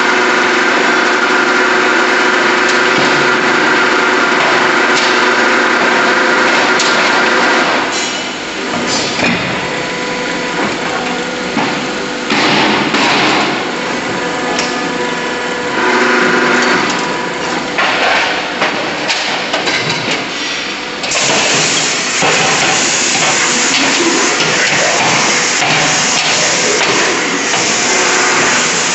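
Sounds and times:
machine whine: 0.0 - 28.9
loud hissing: 21.3 - 28.9.

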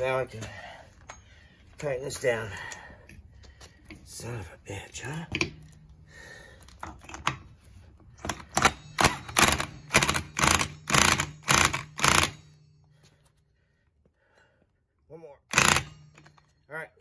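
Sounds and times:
impact wrench hammering: 8.2 - 12.7, 15.5 - 16.5.

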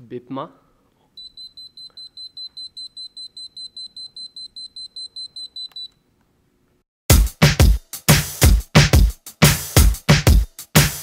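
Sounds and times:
electronic buzzer beeping rapidly: 1.2 - 5.8.

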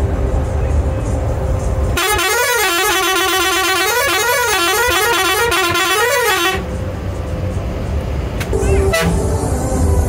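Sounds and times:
moving bus rumble: 0.0 - 10.0
bus horn playing warbling tune: 2.0 - 6.7, 8.6 - 9.4.

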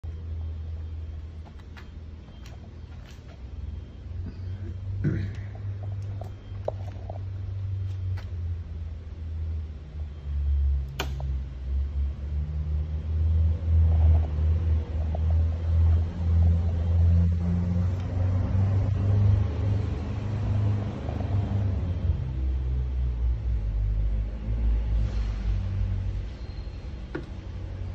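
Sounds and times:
sharp click: 10.9 - 11.3.

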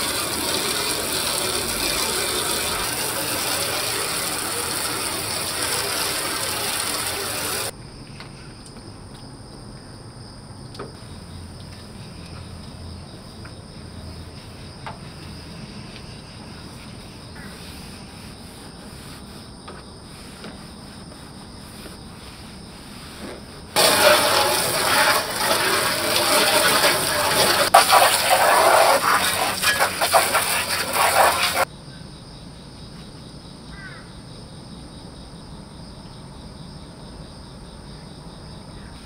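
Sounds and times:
hose spray hissing on metal: 0.0 - 7.7, 20.1 - 31.7.

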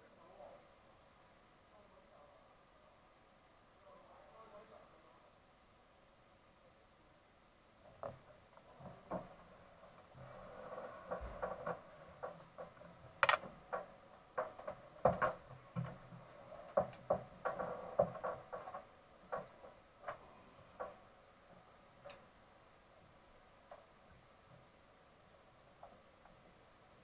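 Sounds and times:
hands clicking and tapping fittings: 11.6 - 16.0.

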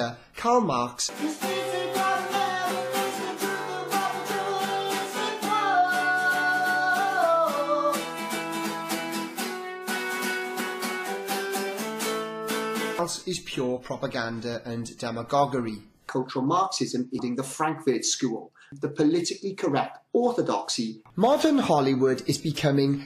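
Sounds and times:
man singing: 0.6 - 8.3
acoustic guitar strumming: 1.1 - 13.0.

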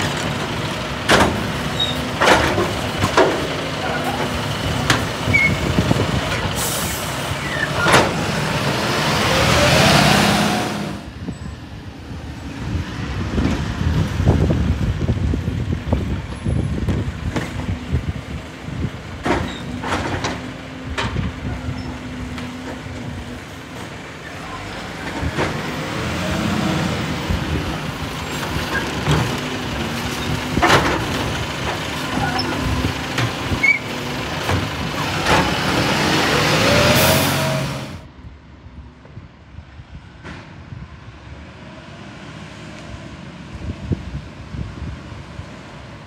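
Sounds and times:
bins banging against hopper: 0.0 - 6.7, 7.6 - 8.6, 19.2 - 21.5, 28.3 - 36.2
diesel engine running: 12.2 - 38.1.

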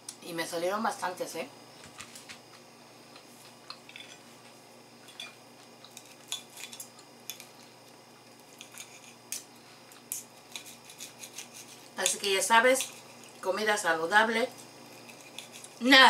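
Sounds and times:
knife and fork scraping a plate: 5.1 - 7.5, 8.4 - 9.5, 10.1 - 13.4, 14.5 - 15.8.

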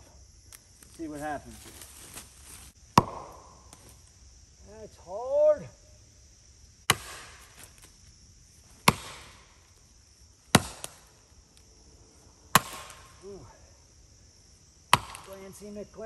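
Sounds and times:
axe chopping wood: 2.9 - 3.9, 6.9 - 7.8, 8.8 - 9.6, 10.5 - 11.1, 12.5 - 13.2, 14.9 - 15.4.

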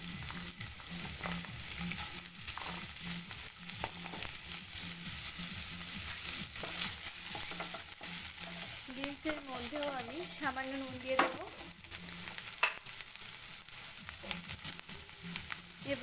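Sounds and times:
green beans sizzling in oil: 0.0 - 16.0
wooden spatula scraping a pan: 0.8 - 2.9, 5.9 - 8.9.

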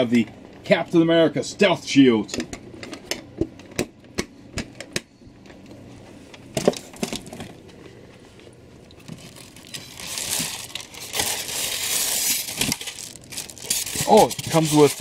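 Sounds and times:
plastic bag crinkling: 9.0 - 15.0.

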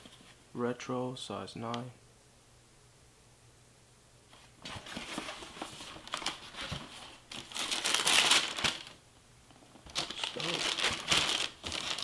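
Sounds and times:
paper crinkling and rustling: 4.4 - 9.0, 9.8 - 12.0.

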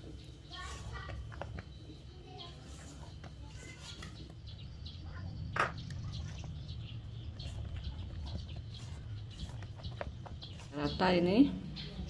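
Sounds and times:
spatula scraping batter in bowl: 0.2 - 4.5, 7.2 - 11.3.

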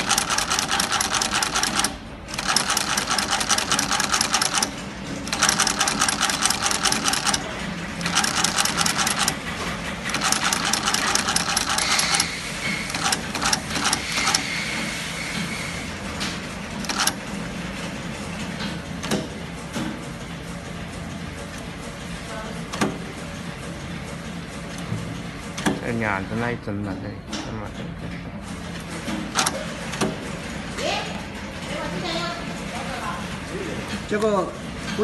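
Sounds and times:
sewing machine stitching: 0.0 - 14.5, 16.8 - 17.2.

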